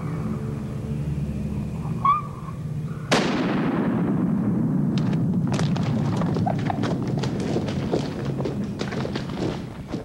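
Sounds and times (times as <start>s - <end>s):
shotgun blast echoing: 3.1s - 5.1s
footsteps running through dry leaves: 5.5s - 10.0s.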